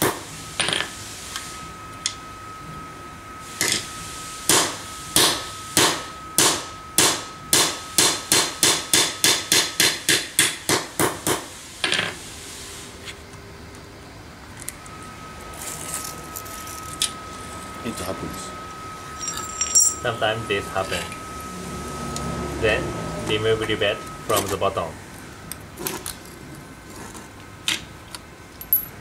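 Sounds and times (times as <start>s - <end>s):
hammer striking steel punch: 4.5s - 11.4s.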